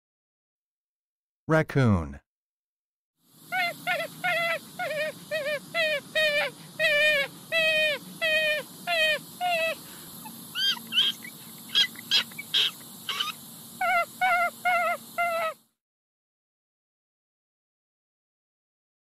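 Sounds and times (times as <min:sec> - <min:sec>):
raccoon whining calls: 0:03.4 - 0:15.6
raccoon high chirps: 0:03.5 - 0:15.6.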